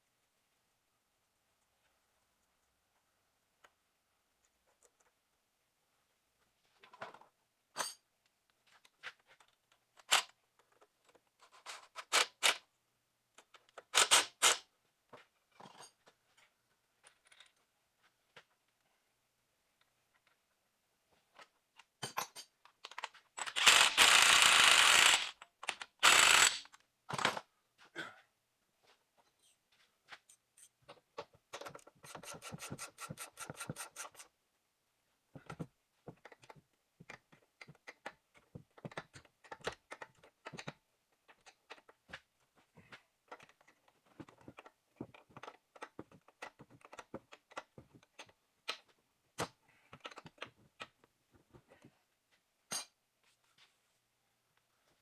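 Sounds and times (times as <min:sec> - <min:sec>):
hand tools and bolts clinking: 0:07.7 - 0:08.1, 0:21.9 - 0:27.3
ratchet clicking rapidly: 0:23.6 - 0:25.4, 0:26.0 - 0:26.6.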